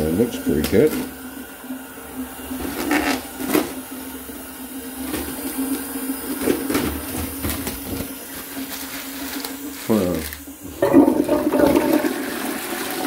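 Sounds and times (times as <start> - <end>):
plastic bag crinkling: 6.6 - 10.5.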